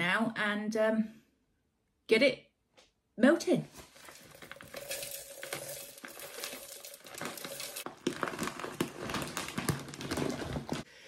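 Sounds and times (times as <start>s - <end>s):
wax flakes pattering on metal: 3.8s - 10.0s
plastic bag crinkling: 3.8s - 10.9s.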